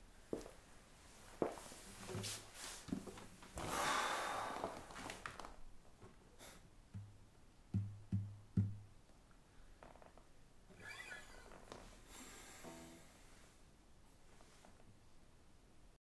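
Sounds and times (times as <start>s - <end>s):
clothes rustling on sofa: 0.3s - 3.9s, 4.5s - 5.6s
knocks on acoustic guitar body: 7.7s - 8.8s.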